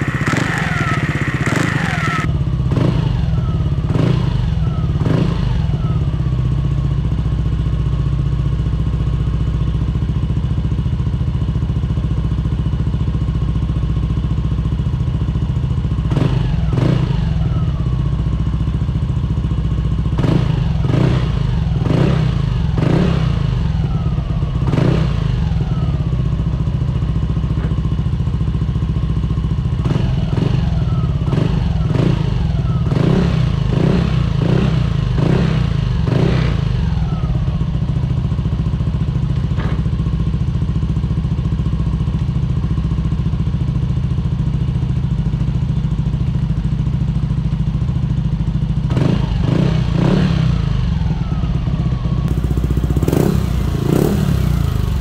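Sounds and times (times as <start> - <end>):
short throttle blips: 0.0 - 2.3
scooter engine idling: 0.0 - 55.0.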